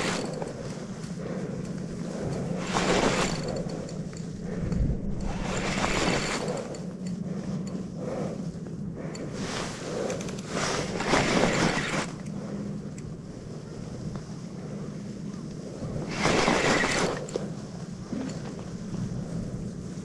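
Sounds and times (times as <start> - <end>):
fishing reel whirring: 0.0 - 1.2, 1.8 - 7.8, 9.9 - 12.4, 16.0 - 17.5.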